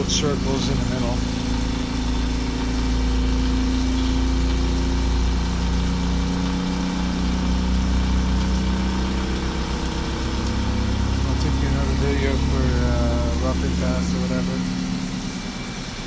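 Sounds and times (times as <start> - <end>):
coolant spraying: 0.0 - 16.0
lathe machine hum: 0.0 - 16.0.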